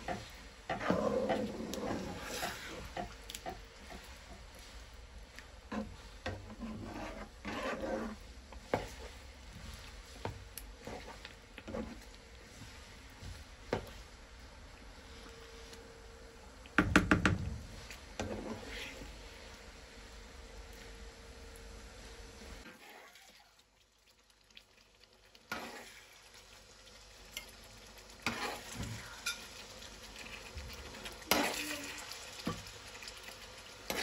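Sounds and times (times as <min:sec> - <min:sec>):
spatula scraping frying pan: 0:00.0 - 0:12.8, 0:18.1 - 0:19.2, 0:25.5 - 0:26.2, 0:28.2 - 0:29.5, 0:31.2 - 0:32.5.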